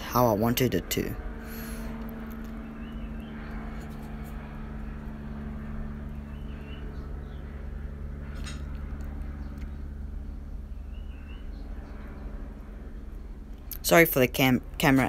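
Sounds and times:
low mechanical hum: 0.0 - 15.0
faint bird chirps: 10.7 - 12.2.

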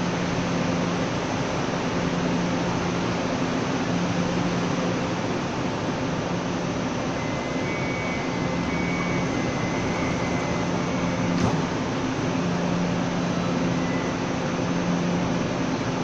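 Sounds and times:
train equipment hum: 0.0 - 16.0
train doors shutting knock: 11.2 - 12.1.

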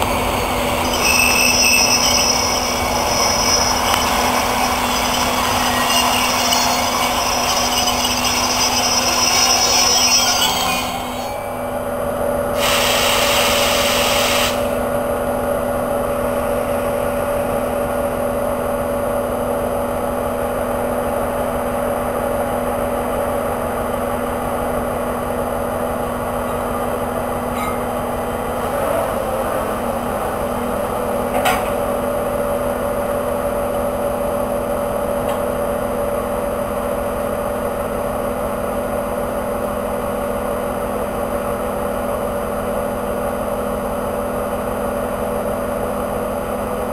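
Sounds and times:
diesel locomotive idling: 0.0 - 28.7.

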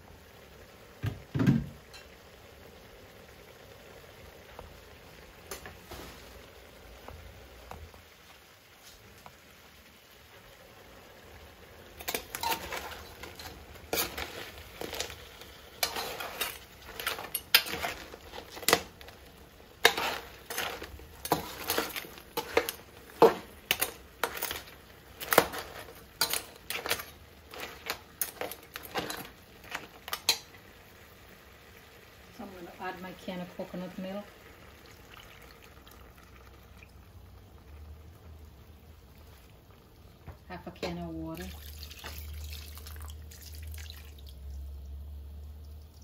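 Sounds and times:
crab shells clattering: 12.0 - 30.5
metal spoon scraping a pan: 12.0 - 30.6.

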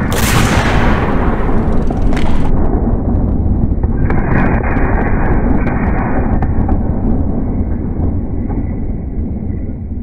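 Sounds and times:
gunshot blast: 0.0 - 3.0
low rumble: 0.0 - 10.0.

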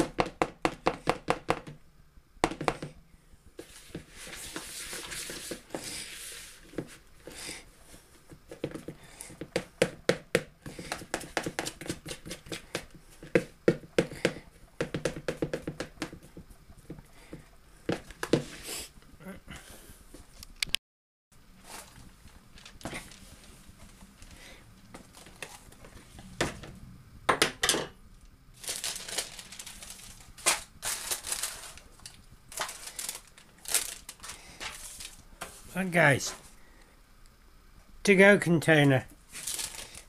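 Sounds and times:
spoon knocking in plastic bowl: 9.5 - 16.4.

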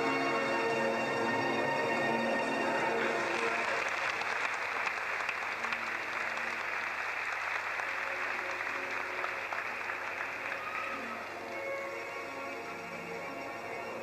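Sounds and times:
music with bell-like tones: 0.0 - 3.6
audience applauding: 2.6 - 14.0.

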